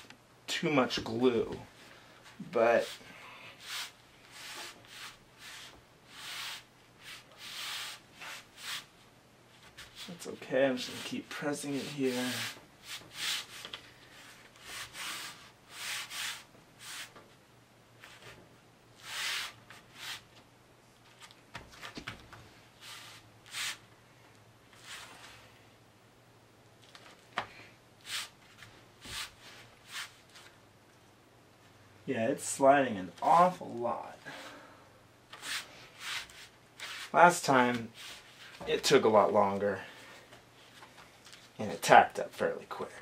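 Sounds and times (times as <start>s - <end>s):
hands rubbing board: 3.6s - 8.9s, 10.7s - 17.2s, 19.0s - 20.3s, 28.0s - 30.5s, 35.4s - 37.2s.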